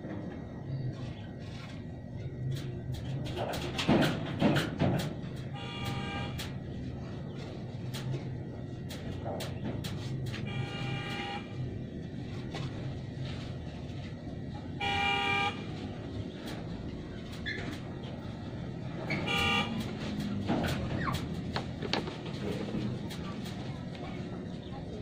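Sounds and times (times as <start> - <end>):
vehicle horn honks: 5.6 - 6.5, 10.4 - 11.6, 14.8 - 15.8, 19.1 - 19.9.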